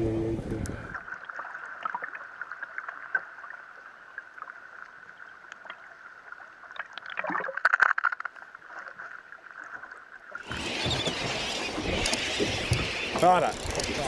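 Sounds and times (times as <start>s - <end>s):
steady underwater hum: 0.0s - 2.1s
bubbles clicking and crackling: 10.4s - 14.0s.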